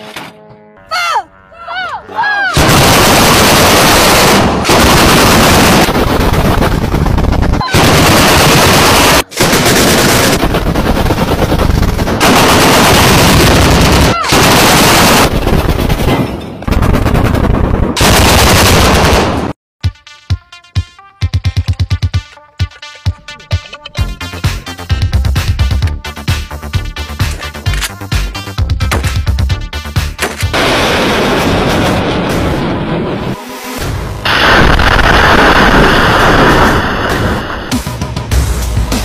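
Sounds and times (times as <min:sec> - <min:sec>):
autocannon automatic fire: 0:02.6 - 0:19.6, 0:30.2 - 0:32.6.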